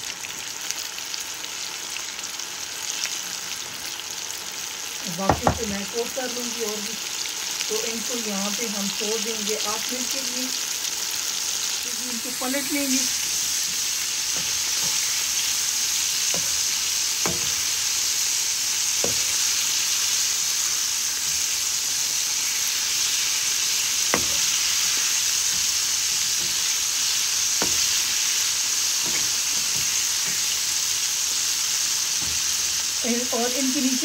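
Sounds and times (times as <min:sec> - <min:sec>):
chicken deep-frying in oil: 0:00.0 - 0:34.0.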